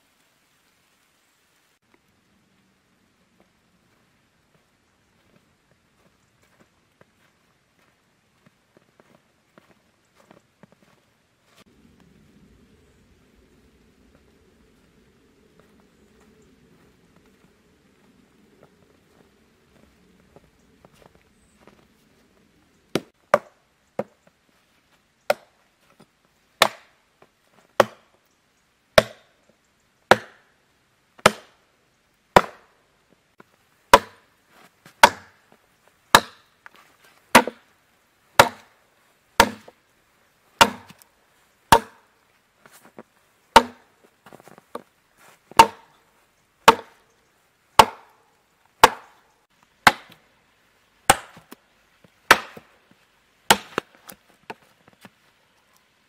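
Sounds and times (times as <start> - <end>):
hatchet chopping log: 22.9 - 24.2, 25.3 - 25.5, 26.6 - 26.9, 27.8 - 28.1, 29.0 - 29.3, 30.1 - 30.5, 31.2 - 31.6, 32.4 - 32.7, 33.9 - 34.2, 35.0 - 35.4, 36.1 - 36.5, 37.3 - 37.6, 38.4 - 38.7, 39.4 - 39.8, 40.6 - 41.0, 41.7 - 42.0, 43.6 - 43.8, 45.5 - 46.0, 46.6 - 47.0, 47.8 - 48.2, 48.8 - 49.2, 49.8 - 50.2, 51.1 - 51.6, 52.3 - 52.7, 53.5 - 54.6.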